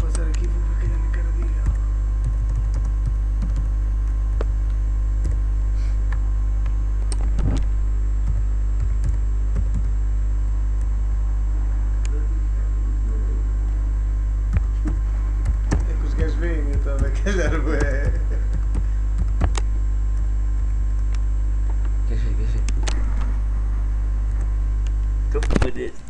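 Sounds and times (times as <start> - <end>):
low electrical mains hum: 0.0 - 26.0
computer keyboard typing: 0.1 - 4.2, 8.3 - 10.0, 14.5 - 19.6.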